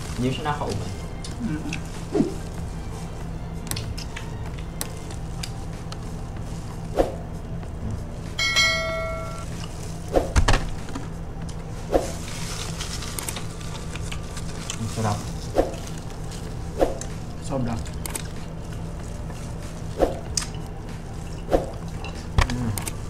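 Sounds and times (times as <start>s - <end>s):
low steady hum: 0.0s - 23.0s
bell-like chime: 8.4s - 9.5s.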